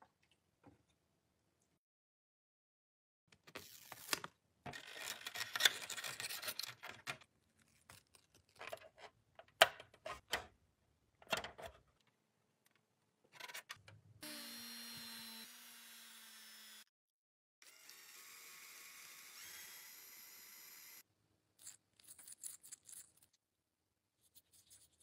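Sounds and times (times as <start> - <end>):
hands handling plastic toy parts: 3.4 - 10.4, 21.6 - 23.4.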